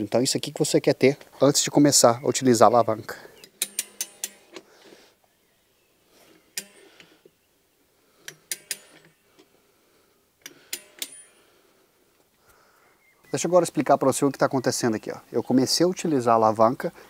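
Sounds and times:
tire-changer lever metal clicks: 0:03.4 - 0:04.7, 0:06.6 - 0:07.1, 0:08.2 - 0:09.5, 0:10.4 - 0:11.3.

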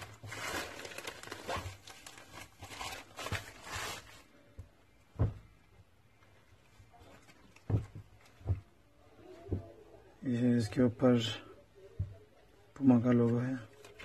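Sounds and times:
plastic mailer bag rustling: 0:00.0 - 0:04.4
dull thump: 0:05.1 - 0:05.6, 0:07.7 - 0:08.7.

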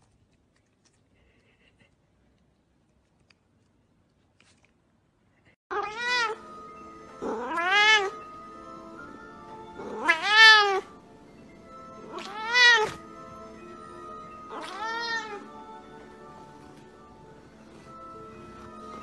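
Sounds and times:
cat meowing: 0:05.7 - 0:06.4, 0:07.2 - 0:08.2, 0:09.8 - 0:11.0, 0:12.1 - 0:13.0, 0:14.5 - 0:15.5
quiet background music: 0:05.7 - 0:19.0.

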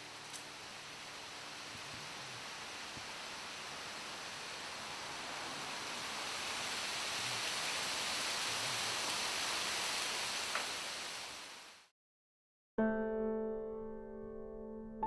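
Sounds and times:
piano chord: 0:12.8 - 0:15.0.

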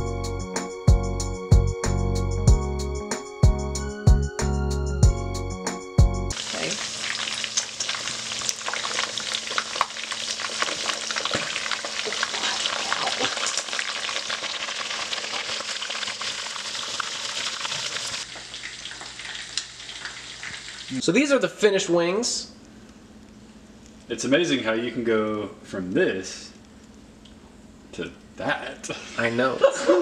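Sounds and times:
chicken frying in hot oil: 0:06.3 - 0:21.0.

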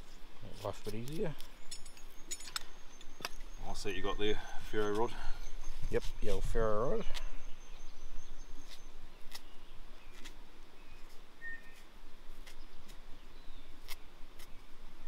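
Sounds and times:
short bird chirps: 0:08.6 - 0:11.8.

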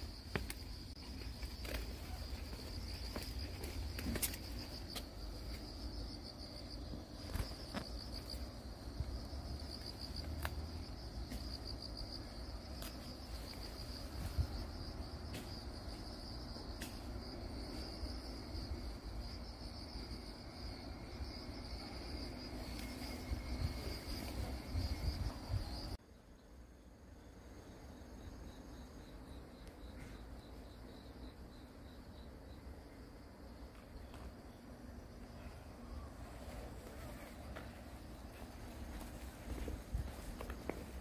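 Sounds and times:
insects chirring: 0:00.0 - 0:41.0.

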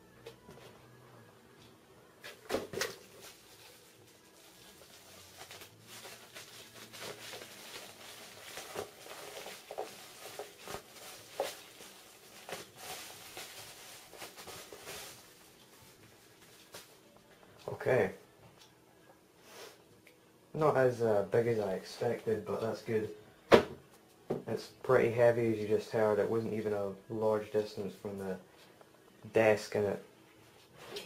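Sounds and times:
bubble wrap rustling and crackling: 0:02.8 - 0:17.0.

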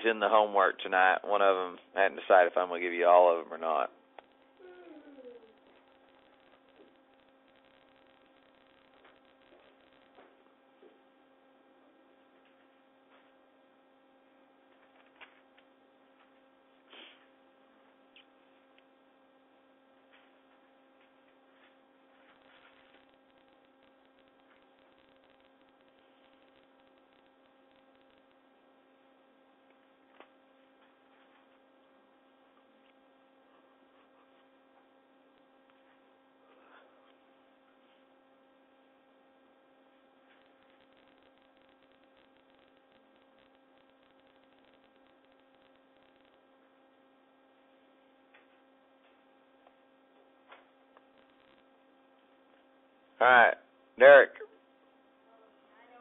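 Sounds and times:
steady electrical hum: 0:00.0 - 0:56.0.

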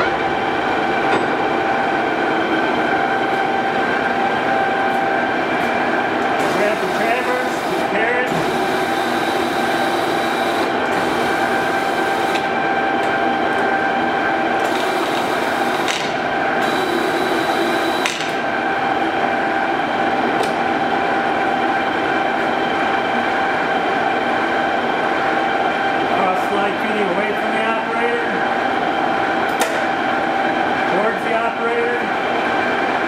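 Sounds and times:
lathe headstock whine: 0:00.2 - 0:26.1.

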